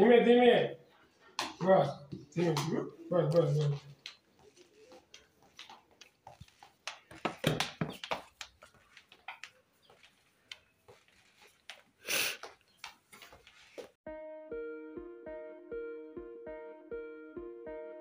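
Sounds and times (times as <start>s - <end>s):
hooves tapping on tiled floor: 1.2s - 14.0s.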